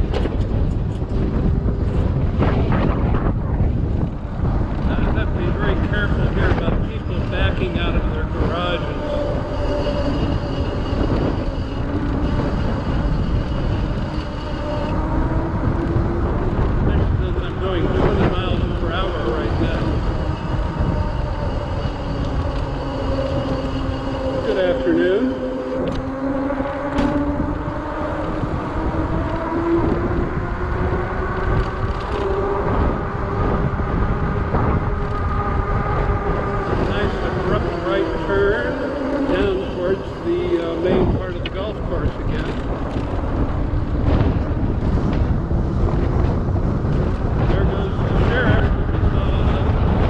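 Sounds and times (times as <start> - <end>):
road noise: 0.0 - 50.0
wind buffeting microphone: 0.0 - 50.0
faint high whine: 4.9 - 31.4, 34.4 - 42.5
small motor humming: 17.5 - 41.0.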